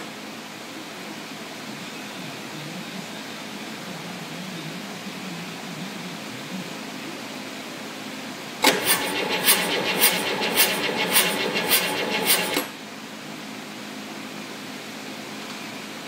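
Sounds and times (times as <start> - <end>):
diesel engine cranking on starter: 8.6 - 12.8.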